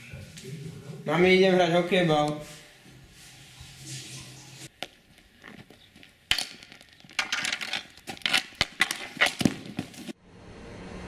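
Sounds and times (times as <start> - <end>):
hockey stick clacking on asphalt: 4.8 - 10.2.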